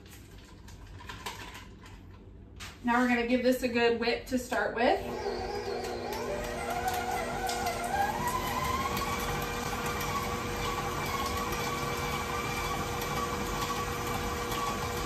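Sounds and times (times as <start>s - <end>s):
stand mixer motor whine: 5.0s - 15.0s.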